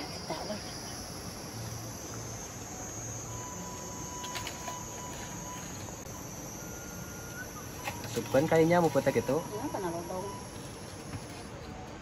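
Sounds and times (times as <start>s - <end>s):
crickets and insects chirping: 0.0s - 12.0s
thin high tone: 0.0s - 12.0s.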